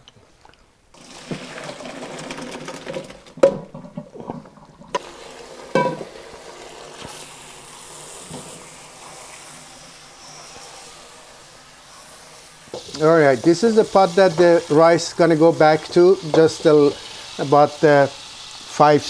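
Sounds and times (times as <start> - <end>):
water pouring into colander: 1.0 - 3.4, 4.5 - 19.0
water draining hiss: 4.8 - 19.0.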